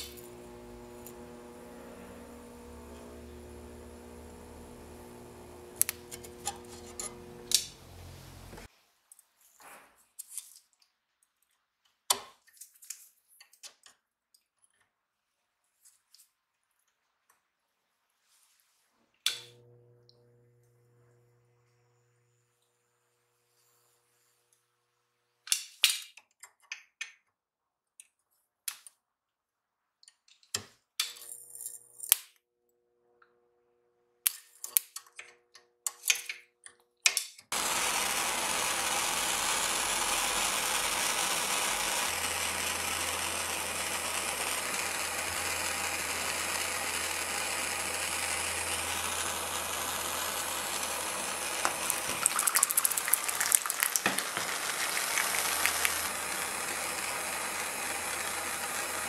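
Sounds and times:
torch flame hissing: 51.3 - 56.6
liquid burning crackling: 51.6 - 56.2.

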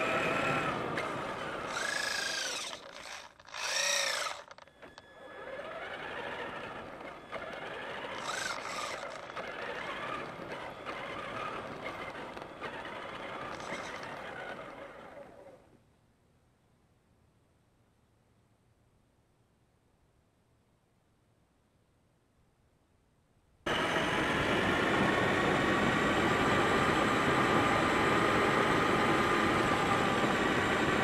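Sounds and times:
electric motor whining: 0.0 - 15.6
tyres rolling on gravel: 0.7 - 15.4.

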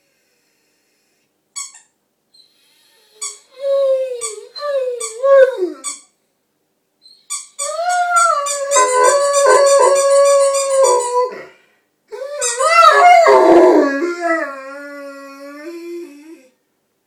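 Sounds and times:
squeaky toy squeaking: 1.6 - 2.0, 3.1 - 3.5, 4.2 - 6.1, 7.0 - 11.2, 12.3 - 13.1
dog howling: 7.7 - 11.5, 12.1 - 16.4.

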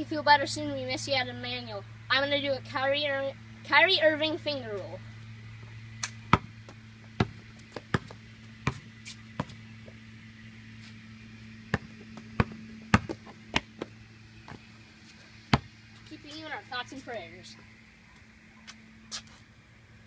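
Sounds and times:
basketball bouncing on concrete: 5.6 - 10.0, 11.7 - 13.9, 14.5 - 14.7, 15.4 - 16.4.

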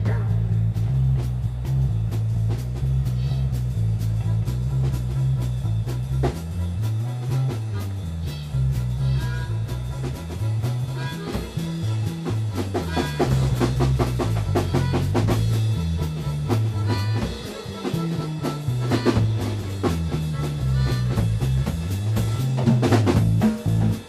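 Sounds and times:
drum kit groove: 0.0 - 24.0
electric bass riff: 0.0 - 24.0.

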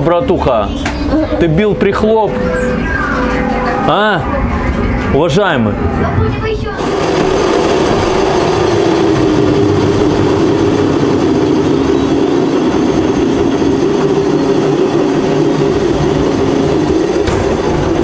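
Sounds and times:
continuous drone: 0.0 - 18.0
ride car rail rumble: 0.0 - 18.0.

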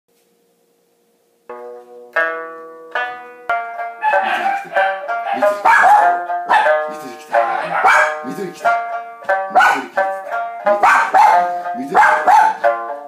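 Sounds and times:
plucked lute notes: 1.4 - 13.0
person singing: 4.0 - 13.0.

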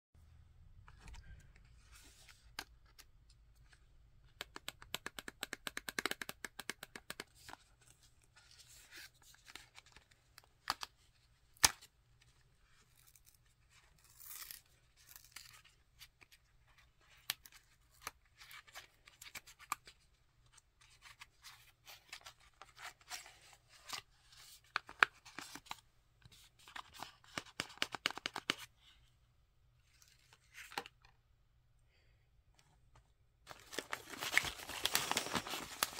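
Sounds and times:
cardboard packaging crackling and tearing: 33.5 - 35.9
packaging snapping: 33.5 - 35.9.

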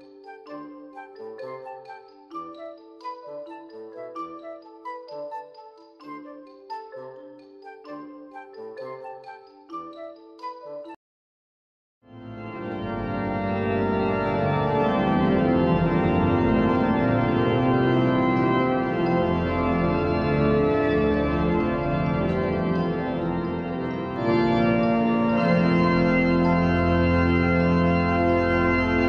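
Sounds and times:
pipe organ chords: 12.1 - 29.0.

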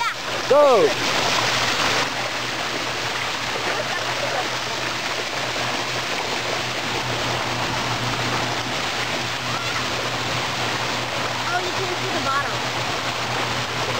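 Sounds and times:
water rushing down slide: 0.0 - 13.9.

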